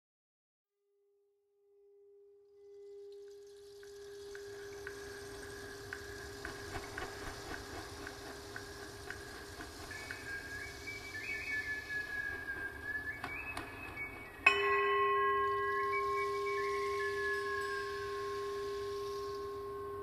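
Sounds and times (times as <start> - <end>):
steady pure tone: 2.2 - 20.0
high whistle-like tone: 2.6 - 20.0
soft hiss: 2.6 - 20.0
light chime-like ticks: 2.8 - 20.0
higher ringing tone: 14.0 - 20.0.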